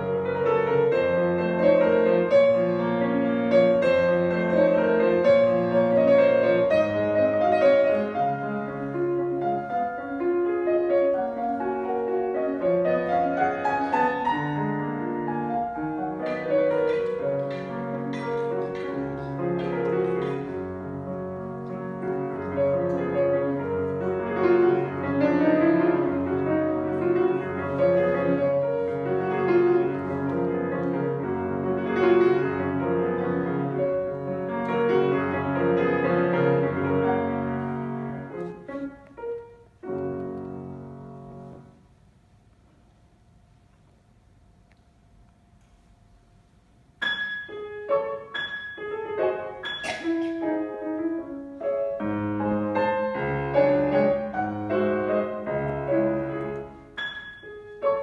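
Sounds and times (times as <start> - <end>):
solo grand piano playing: 0.0 - 58.0.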